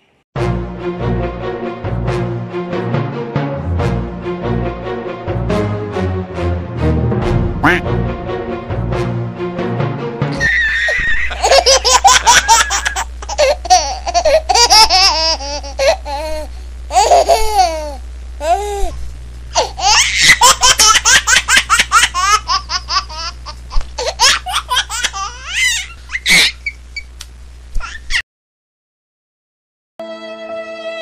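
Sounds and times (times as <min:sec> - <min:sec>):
steady low hum: 0:00.6 - 0:27.8
loud rapid laughter: 0:10.3 - 0:16.2, 0:19.6 - 0:23.4, 0:24.0 - 0:26.8.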